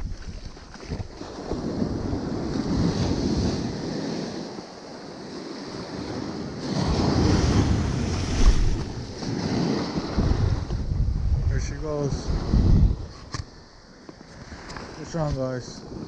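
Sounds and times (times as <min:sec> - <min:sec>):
ocean surf washing around legs: 0:00.0 - 0:11.0
wind on microphone: 0:00.0 - 0:16.0.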